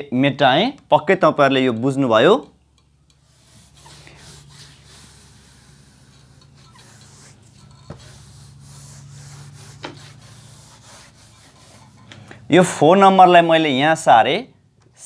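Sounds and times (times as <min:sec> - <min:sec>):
hand rubbing whiteboard: 0:03.1 - 0:12.4.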